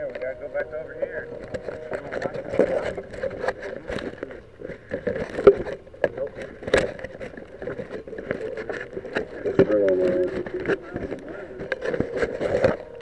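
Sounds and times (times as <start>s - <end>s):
camera handling rubbing and scraping: 0.0s - 13.0s.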